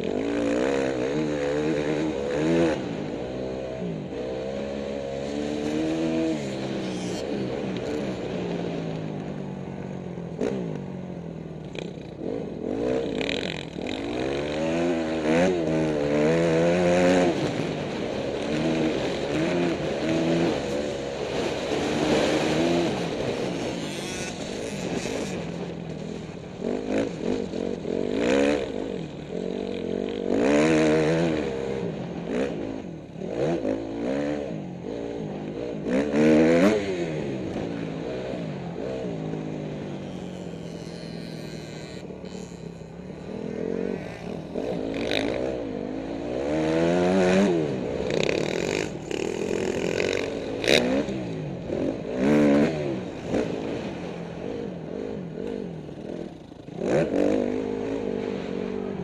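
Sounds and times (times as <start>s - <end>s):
dirt bike engine revving: 0.0s - 8.8s, 11.6s - 59.0s.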